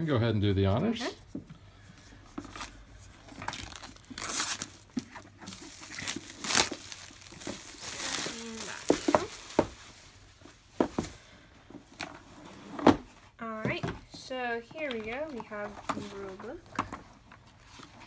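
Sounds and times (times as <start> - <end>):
plastic wrap tearing and crinkling: 3.3 - 10.4.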